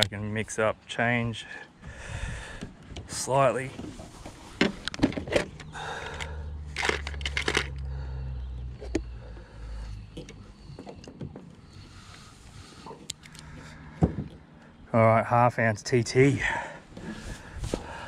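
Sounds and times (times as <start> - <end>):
plastic tray clicking and rattling: 4.7 - 7.8.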